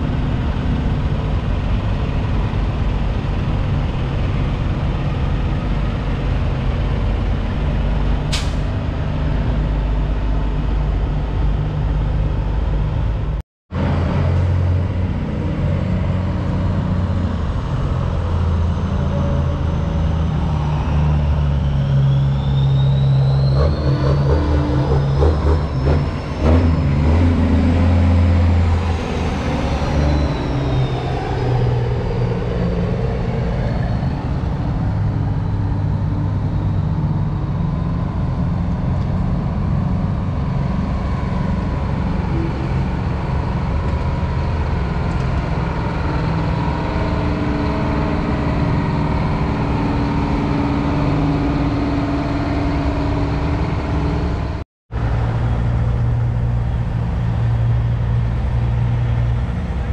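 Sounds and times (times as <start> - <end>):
trucks driving past: 0.0 - 59.9
high whine: 14.2 - 59.9.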